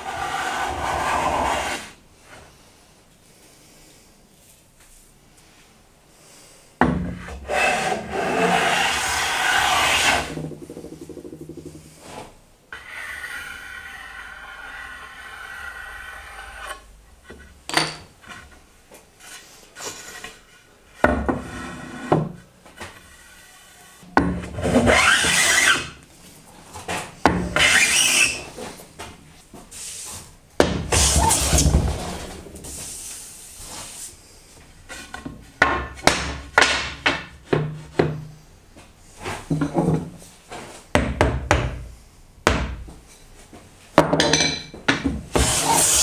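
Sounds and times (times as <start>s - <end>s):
plane shaving wood: 0.0s - 1.9s, 7.4s - 10.5s, 12.8s - 16.8s, 24.7s - 25.9s, 27.6s - 28.4s, 45.4s - 46.0s.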